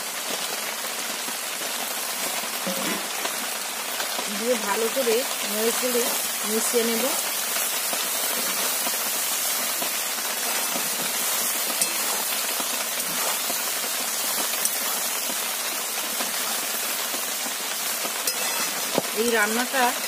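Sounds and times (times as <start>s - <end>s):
food sizzling in a pan: 0.0s - 20.0s
metal spatula stirring: 10.5s - 15.1s, 18.2s - 19.0s.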